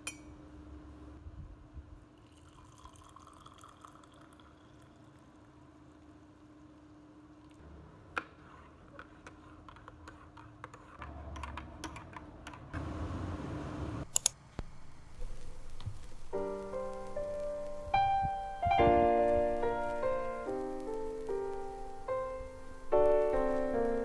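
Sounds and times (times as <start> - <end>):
spoon stirring in ceramic mug: 8.2 - 12.7
piano music: 15.2 - 24.0.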